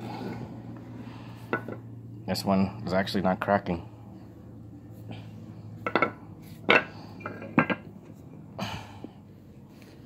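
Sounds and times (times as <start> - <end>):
metal parts knocking and clinking: 5.8 - 7.9.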